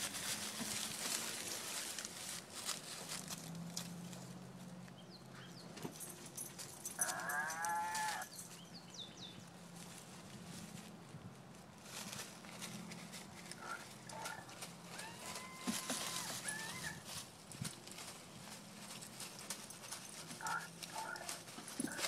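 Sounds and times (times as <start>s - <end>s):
dogs scrabbling through dry leaves: 0.0s - 4.7s, 5.9s - 8.7s, 9.5s - 22.0s
toy playing animal call: 7.0s - 8.3s, 15.0s - 17.0s.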